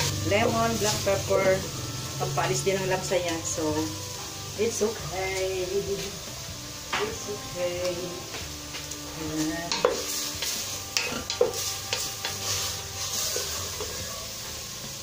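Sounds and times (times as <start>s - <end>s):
meat sizzling in a pot: 0.0s - 15.0s
wooden spoon scraping a pot: 9.4s - 14.2s.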